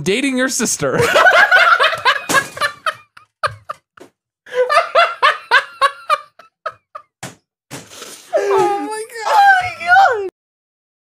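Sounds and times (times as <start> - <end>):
person laughing hard: 1.0 - 7.0.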